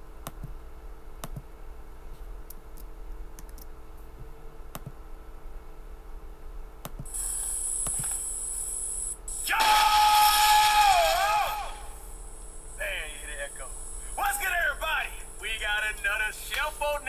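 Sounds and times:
low electrical hum: 0.0s - 17.0s
computer clicks: 2.5s - 3.7s
hiss with high whine: 7.1s - 17.0s.

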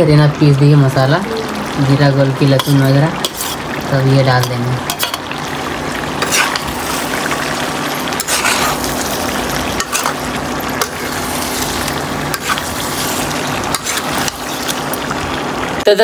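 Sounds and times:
chicken sizzling in pan: 1.3s - 15.9s
spatula scraping metal pan: 2.6s - 3.7s, 6.2s - 7.1s, 8.1s - 10.2s, 10.8s - 14.8s.

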